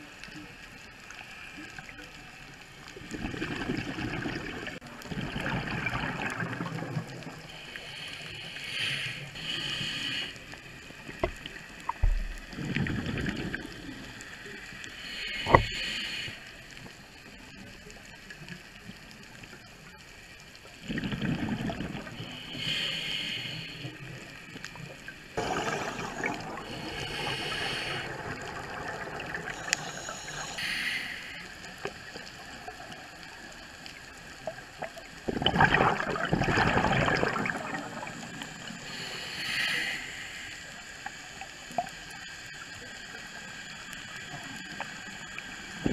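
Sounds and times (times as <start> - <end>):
rush of bubbles: 2.9 - 7.7, 11.0 - 14.1, 20.8 - 22.6, 25.0 - 30.6, 34.4 - 39.2
regulator breathing hiss: 7.4 - 12.5, 13.7 - 17.0, 22.2 - 28.9, 29.5 - 32.5, 38.6 - 45.9.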